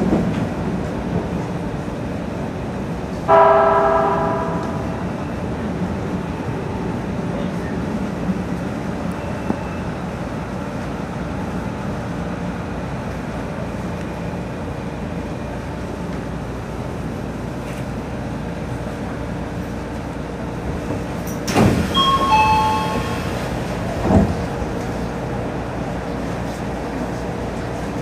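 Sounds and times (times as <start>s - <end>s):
electric train running: 21.6s - 24.3s
ringing tones: 22.0s - 23.2s.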